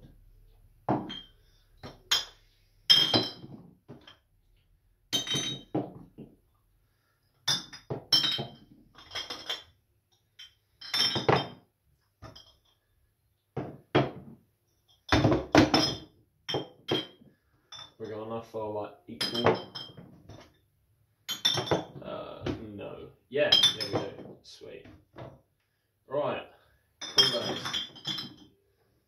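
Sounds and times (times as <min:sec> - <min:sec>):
glass bottles clinking: 0:00.8 - 0:06.3, 0:07.3 - 0:12.9, 0:13.6 - 0:18.3, 0:19.2 - 0:20.6, 0:21.2 - 0:22.6, 0:23.4 - 0:25.4, 0:27.0 - 0:28.7.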